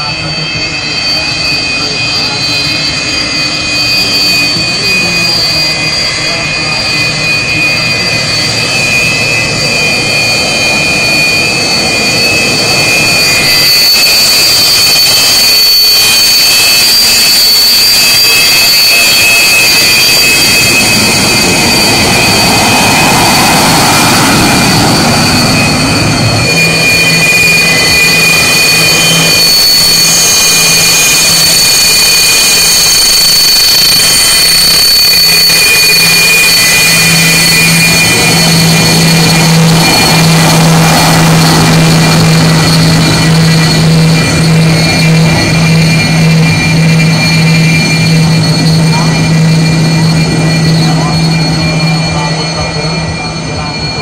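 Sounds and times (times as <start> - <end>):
jet engines rushing with turbine whine: 0.0 - 54.0
steady low hum: 36.6 - 54.0.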